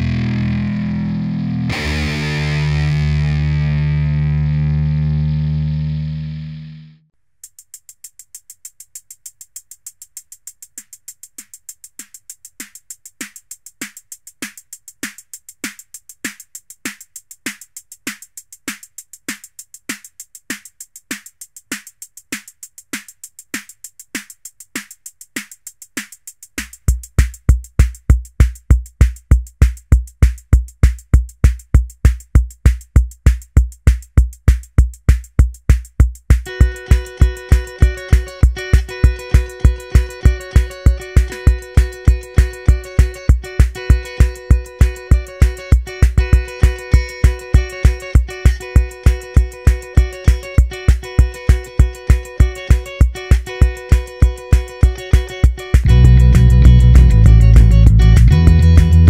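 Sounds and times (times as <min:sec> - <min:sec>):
electronic drum machine beat: 0:01.7 - 0:03.9, 0:07.3 - 0:59.0
deep bass kick: 0:55.8 - 0:59.0.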